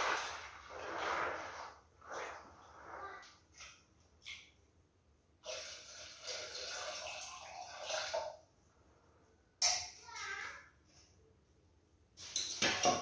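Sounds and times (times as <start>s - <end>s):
water pouring into metal pot: 5.4s - 8.4s.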